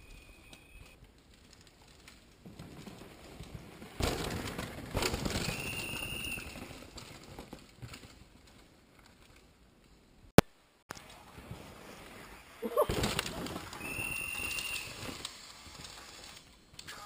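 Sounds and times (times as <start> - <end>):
bike tyres crunching on dirt: 0.0 - 10.1, 10.9 - 16.6
high whistle-like tone: 5.4 - 6.6, 13.8 - 15.0.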